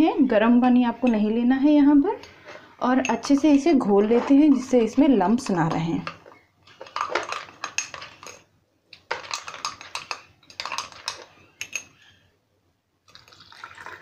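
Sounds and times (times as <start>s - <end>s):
metal spoon clinking in a tumbler: 9.1s - 11.9s.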